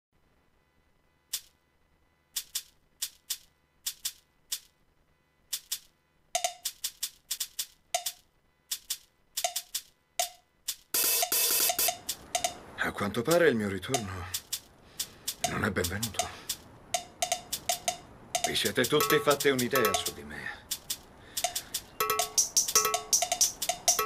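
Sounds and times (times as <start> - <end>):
dry percussion hits: 6.4 - 8.2, 9.4 - 12.8, 14.0 - 20.2, 20.8 - 24.0.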